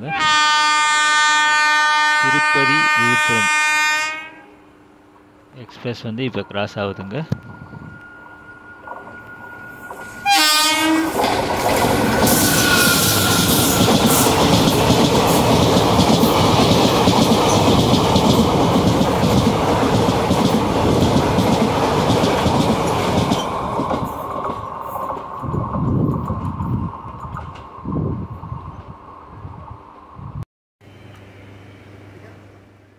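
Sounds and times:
train horn blast: 0.0 - 4.8, 10.2 - 11.2, 12.4 - 13.6
train wheels rattling: 8.9 - 27.8.

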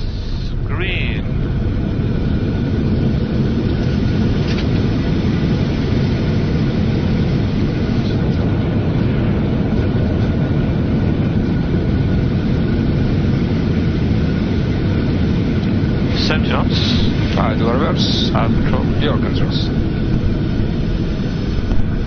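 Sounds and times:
jet engines in reverse thrust: 0.0 - 22.0
runway rumble: 0.0 - 22.0.

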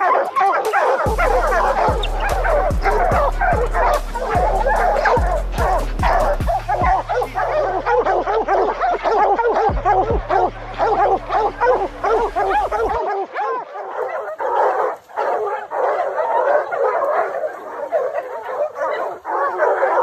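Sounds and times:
hounds baying and barking: 0.0 - 20.0
low rumble: 1.1 - 13.0.

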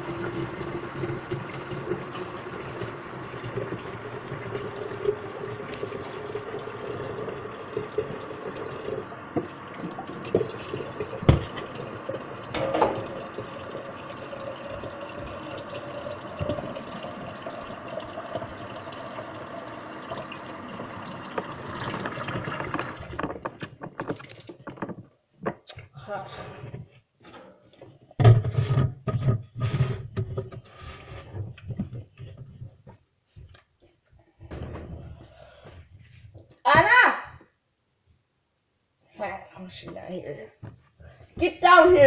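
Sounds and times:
tap water filling container: 0.0 - 25.1.

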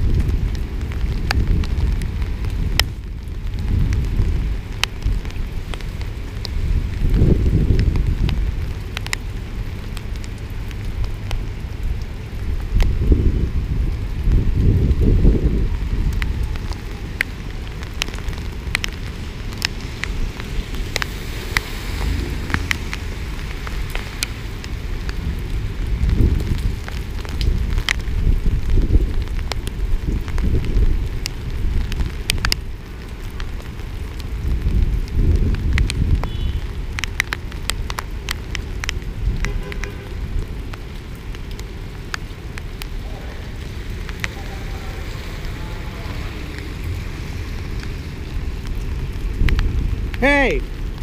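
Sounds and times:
heavy rain: 0.0 - 51.0
raindrops ticking on camera: 0.0 - 51.0
cars hissing through water: 19.8 - 25.0
low rumble: 19.8 - 26.8.

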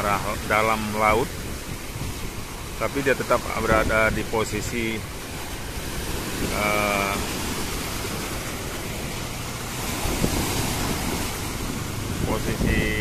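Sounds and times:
sea surf breaking on beach: 0.0 - 13.0.

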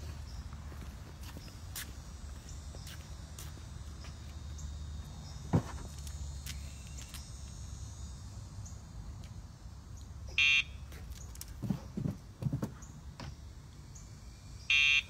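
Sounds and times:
faint insect chirring: 0.0 - 11.6, 12.8 - 15.0
dog landing on concrete: 11.2 - 12.8.

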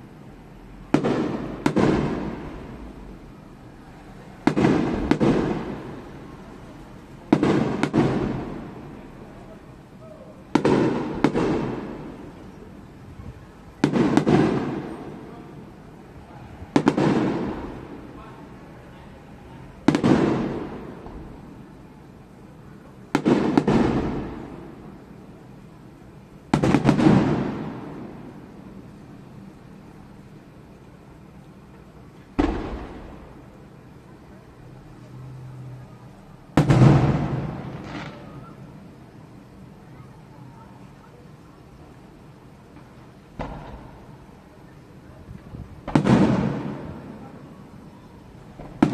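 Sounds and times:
firework shells bursting: 26.5 - 28.2, 36.5 - 38.6, 42.7 - 44.3, 45.4 - 47.8.

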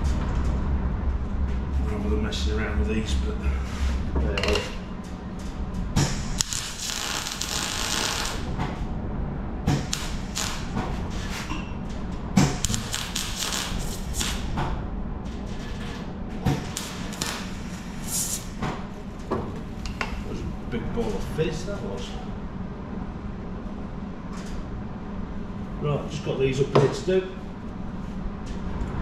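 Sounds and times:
steady low hum: 0.0 - 29.0
welder crackling and hissing: 6.0 - 8.5, 9.7 - 11.5, 12.4 - 14.5, 16.4 - 18.6.

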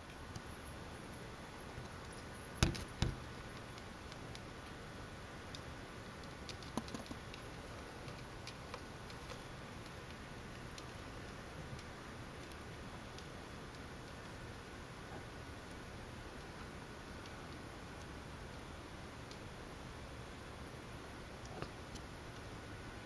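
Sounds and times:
faint ticks and clicks: 0.0 - 23.0
steady low hiss: 0.0 - 23.0
sharp knocks: 2.6 - 3.2.

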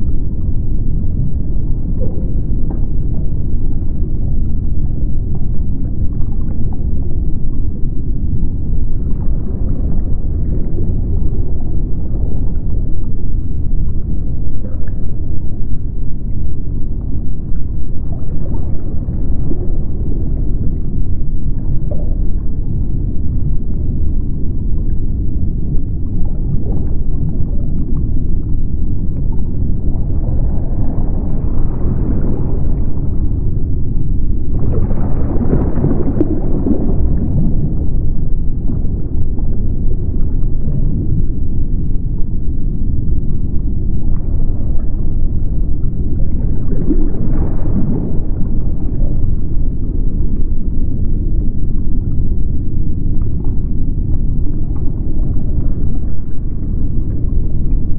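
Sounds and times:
low underwater rumble: 0.0 - 57.9
water surges: 26.1 - 42.2, 43.8 - 50.4.

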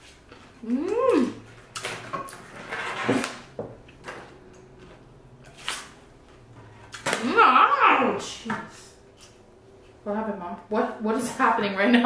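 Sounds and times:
woman's wordless ooh: 0.6 - 1.4.

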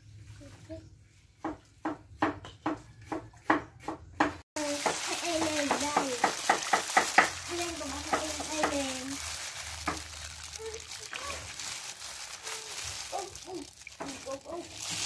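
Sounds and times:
hands squishing wet coconut: 4.6 - 15.0
plastic gloves crackling: 4.6 - 15.0.

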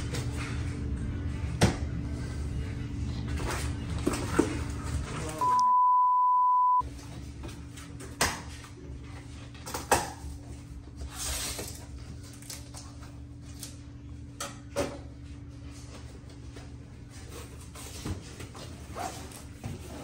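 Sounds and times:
censor bleep: 5.4 - 6.8.

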